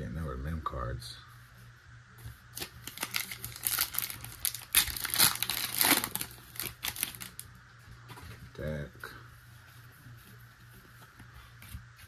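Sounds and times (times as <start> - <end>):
plastic foil wrapper crinkling: 2.6 - 7.5.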